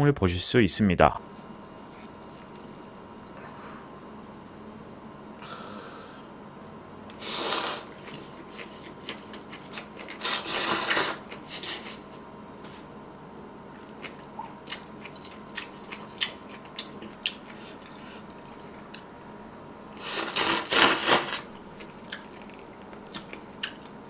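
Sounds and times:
noodles slurped: 7.2 - 12.0, 20.0 - 21.5.

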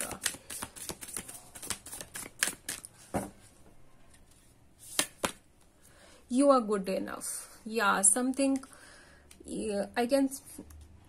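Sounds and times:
cards being shuffled: 0.0 - 3.3, 4.8 - 5.4.

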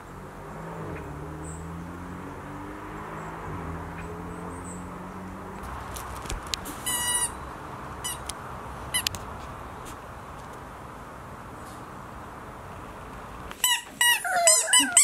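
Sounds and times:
rubber toy squeaking: 6.8 - 7.4, 8.0 - 8.3, 13.6 - 15.0.

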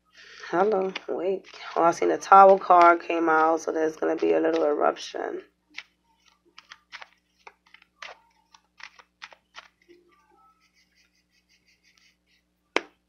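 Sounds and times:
cards being shuffled: 0.6 - 4.8, 5.7 - 10.0.

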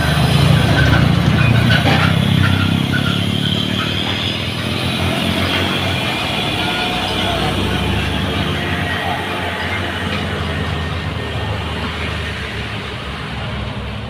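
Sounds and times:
truck diesel engine climbing: 0.0 - 14.0.

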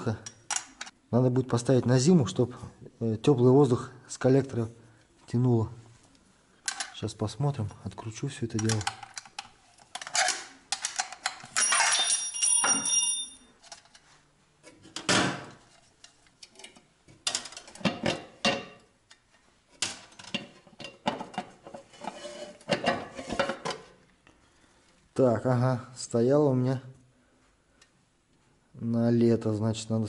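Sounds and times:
metal clicks and rattles: 8.5 - 13.0.

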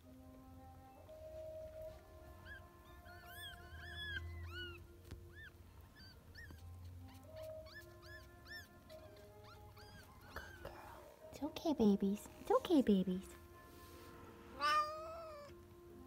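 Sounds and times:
newborn kittens mewing: 2.4 - 11.1, 14.5 - 15.6.

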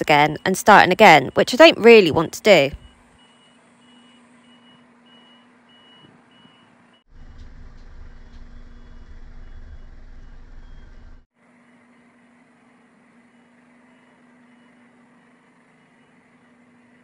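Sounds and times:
reversing alarm beeping: 0.0 - 7.1, 8.0 - 11.2
lorry engine: 0.0 - 11.3
loud low engine sound: 7.1 - 17.0.

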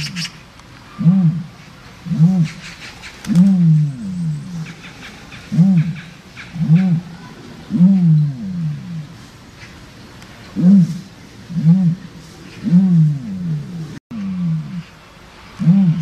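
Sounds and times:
animal calling: 0.0 - 9.1.

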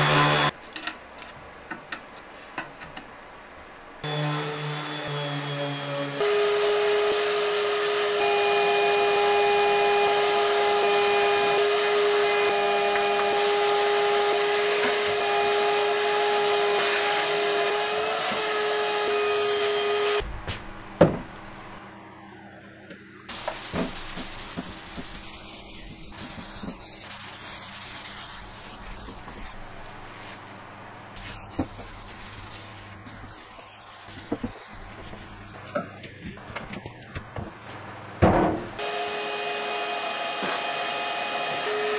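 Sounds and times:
workshop vacuum whining: 0.0 - 0.5, 4.0 - 20.2, 38.7 - 41.9.

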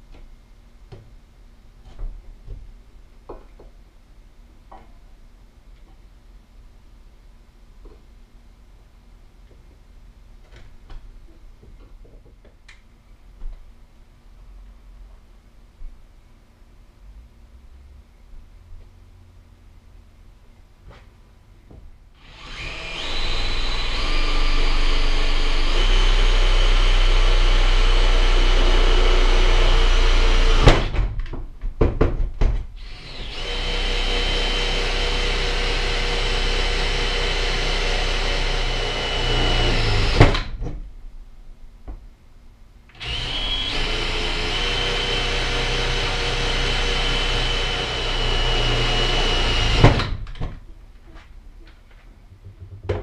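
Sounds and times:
cordless drill drilling: 22.2 - 30.9, 32.8 - 40.5, 43.0 - 50.1.

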